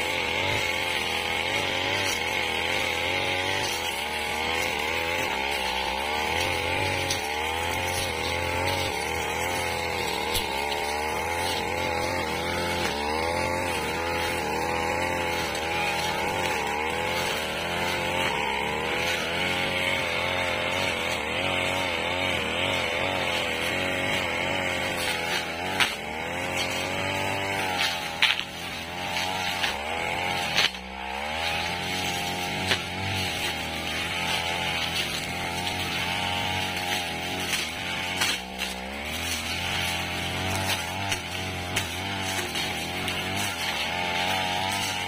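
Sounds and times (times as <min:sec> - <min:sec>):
brush cutter engine cutting weeds: 0:00.0 - 0:45.0.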